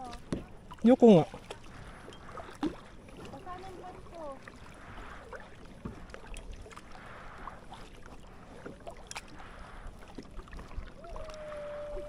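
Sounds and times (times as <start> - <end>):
paddle splashing in water: 0.0 - 12.0
water drips: 8.8 - 12.0.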